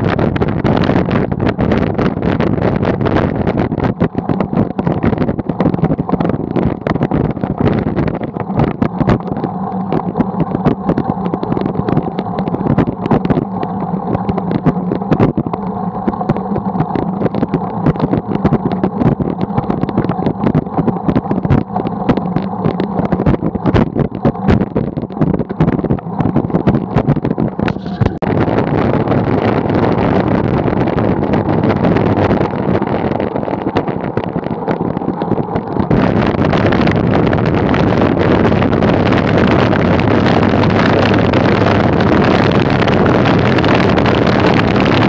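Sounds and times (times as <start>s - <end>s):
wind and road noise: 0.0s - 45.0s
wind buffeting microphone: 0.0s - 45.0s.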